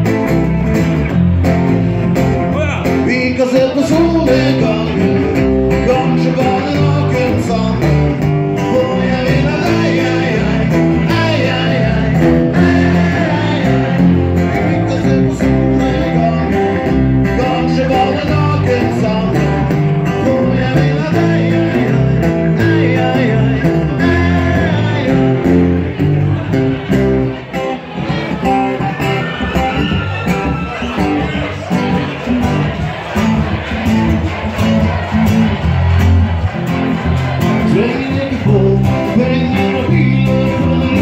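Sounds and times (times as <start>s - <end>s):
acoustic guitars: 0.0s - 41.0s
electric bass guitar: 0.0s - 41.0s
man singing: 2.5s - 25.9s, 37.5s - 41.0s.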